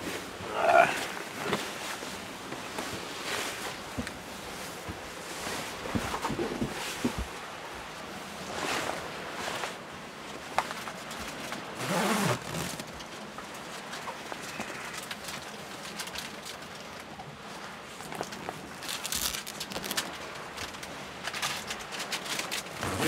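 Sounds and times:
jacket and bedding rustling: 0:00.0 - 0:10.1, 0:10.8 - 0:13.0, 0:22.6 - 0:23.0.

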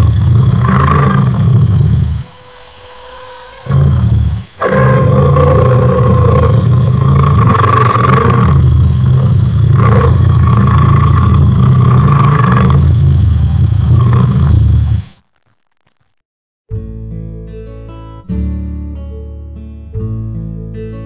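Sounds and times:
lion roaring: 0:00.0 - 0:02.4, 0:03.0 - 0:15.1.

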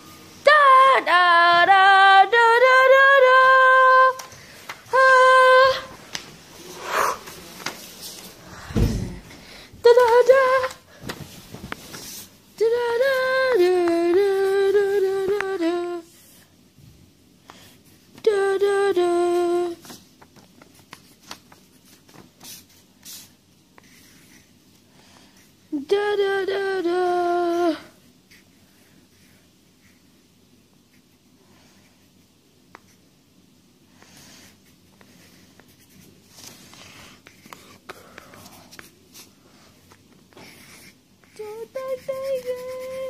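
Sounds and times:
person humming: 0:12.6 - 0:16.1, 0:41.3 - 0:43.0
pen scratching on paper: 0:40.4 - 0:43.0.

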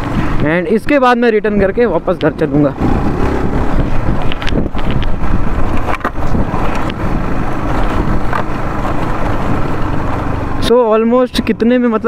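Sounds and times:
wind buffeting microphone: 0:00.0 - 0:10.6
motorcycle engine running: 0:01.4 - 0:10.7.

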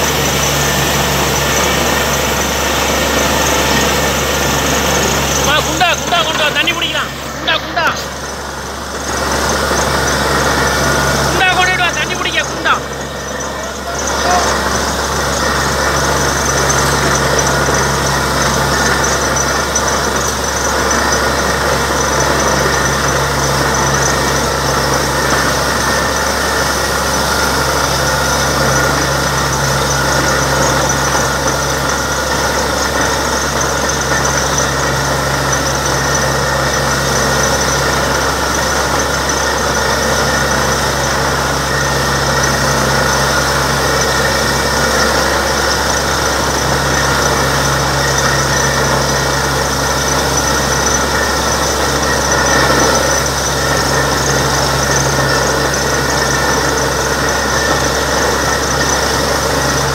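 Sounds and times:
drilling rig running: 0:00.0 - 0:59.9.

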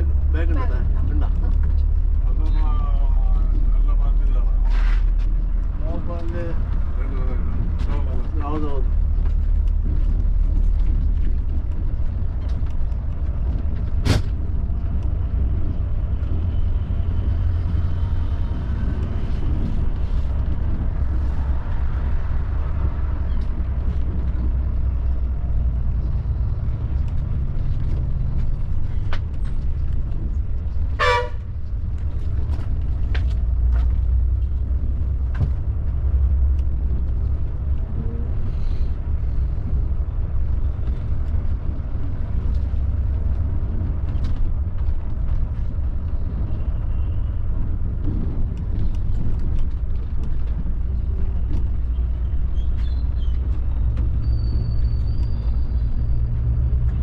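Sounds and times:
coach engine rumbling: 0:00.0 - 0:57.0
short horn honk: 0:31.0 - 0:31.4.

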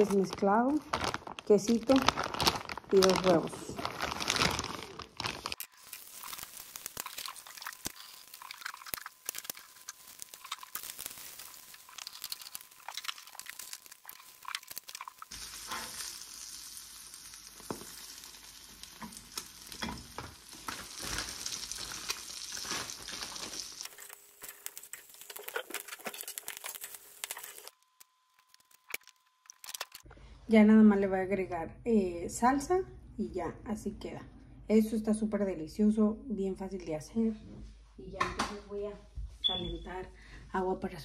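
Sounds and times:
eggs sizzling in oil: 0:05.4 - 0:30.1.

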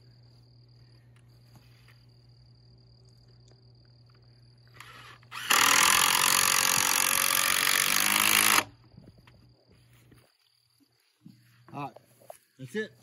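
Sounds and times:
power driver driving screw into wood: 0:04.8 - 0:08.7.

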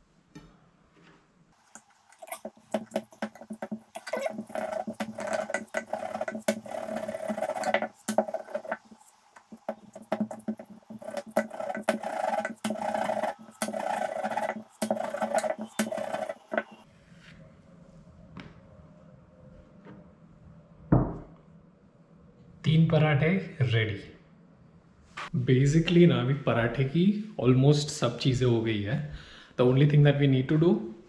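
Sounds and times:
rolling pin rolling dough: 0:01.6 - 0:16.9.

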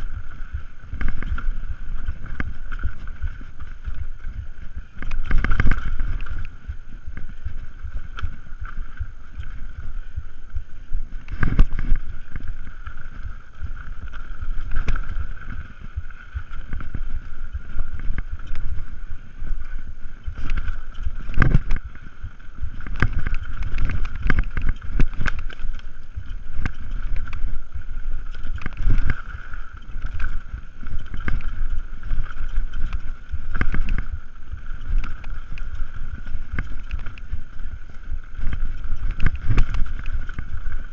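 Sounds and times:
bike rattling: 0:00.0 - 0:40.9
wind buffeting microphone: 0:00.0 - 0:40.9.

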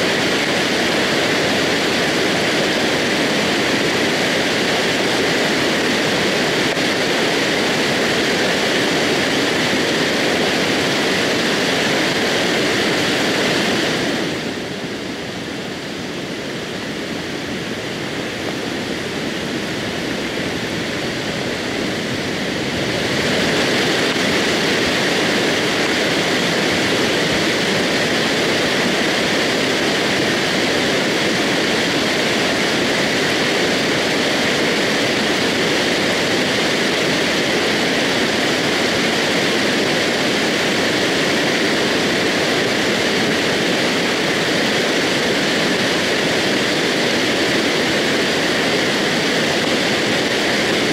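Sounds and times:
mudflow rushing roar: 0:00.0 - 0:50.9.

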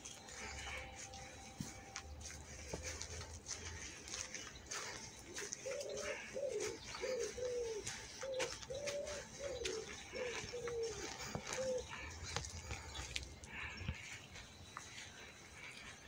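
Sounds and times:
animal calling: 0:04.7 - 0:14.0.

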